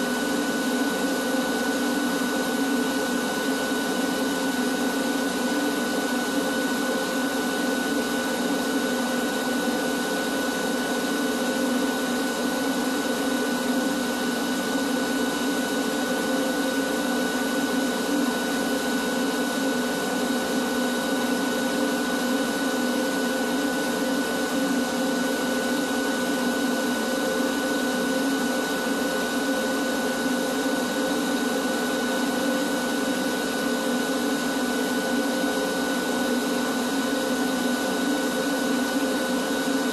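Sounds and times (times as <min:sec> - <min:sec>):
vacuum cleaner running: 0:00.0 - 0:39.9.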